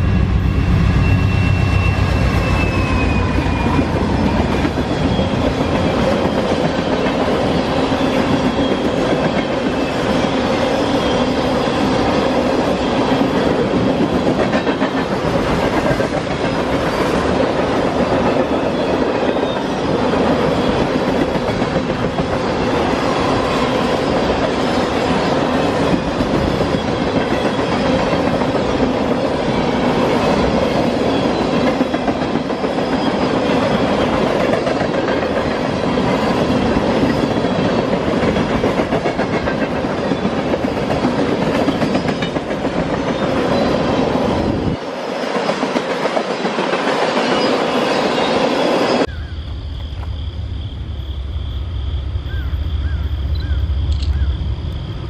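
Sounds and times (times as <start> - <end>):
train rumble: 0.0 - 55.0
wheels clacking on rail joints: 13.0 - 47.7.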